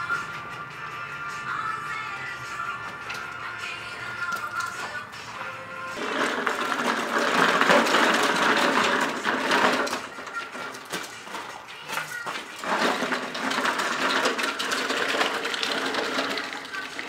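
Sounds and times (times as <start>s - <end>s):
lawn mower clattering on gravel: 4.2s - 17.0s.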